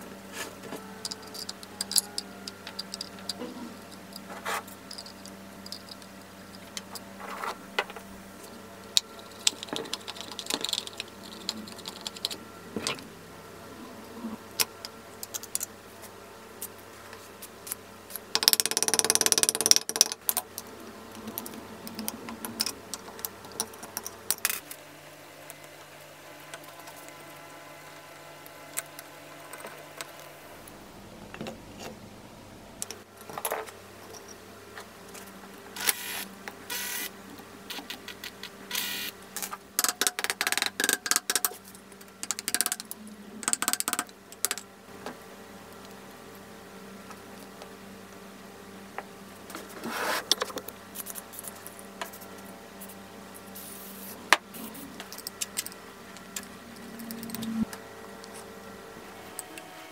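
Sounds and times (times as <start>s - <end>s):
aerosol spray hiss: 53.6s - 54.2s.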